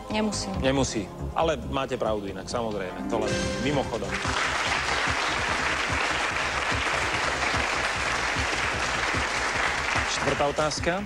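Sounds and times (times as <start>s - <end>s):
audience applauding: 3.6s - 11.0s.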